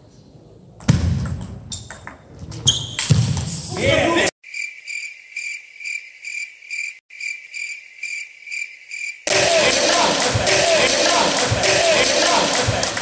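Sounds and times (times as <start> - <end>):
hall noise: 9.3 - 13.0.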